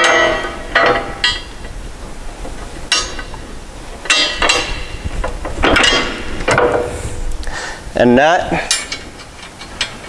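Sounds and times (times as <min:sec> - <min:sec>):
metal clinks of arm and bolt: 0:05.6 - 0:06.9, 0:08.6 - 0:10.0.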